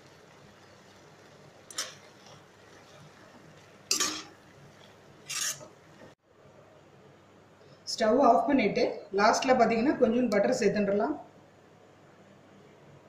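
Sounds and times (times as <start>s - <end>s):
spoon scraping a pan: 3.9s - 4.4s, 5.2s - 5.8s.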